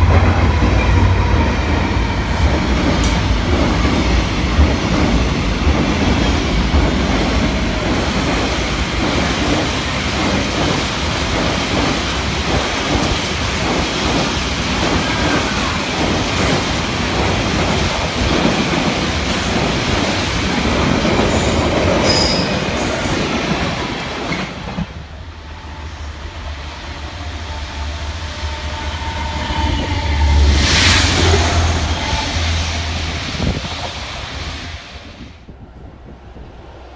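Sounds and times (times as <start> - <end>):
train wheel squeals: 21.3 - 23.2.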